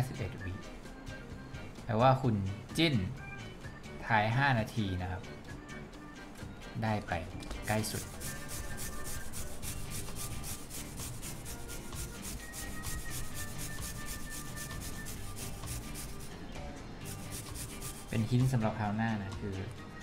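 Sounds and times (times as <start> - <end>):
paintbrush scrubbing circuit board: 7.6 - 16.3, 17.1 - 18.3.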